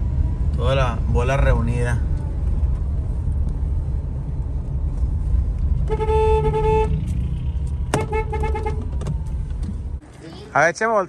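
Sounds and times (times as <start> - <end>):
vehicle engine rumbling: 0.0 - 11.0
car horn honking: 5.8 - 7.2, 7.9 - 8.9.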